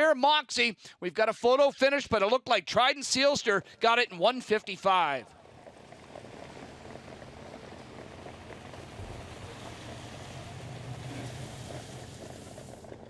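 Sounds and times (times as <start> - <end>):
horses and sulkies rushing by: 4.7 - 13.0.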